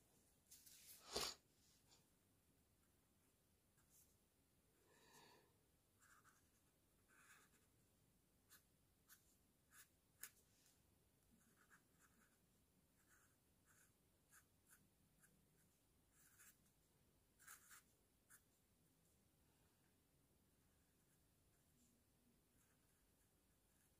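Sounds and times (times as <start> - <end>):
marker pen drawing on paper: 6.0 - 7.8, 8.4 - 10.5, 11.3 - 18.6, 22.4 - 23.9.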